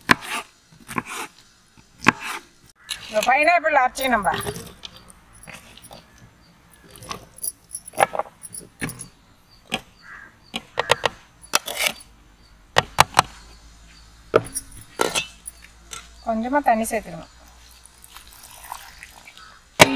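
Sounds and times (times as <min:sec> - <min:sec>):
utensils clattering: 0:02.9 - 0:06.1, 0:14.4 - 0:16.1.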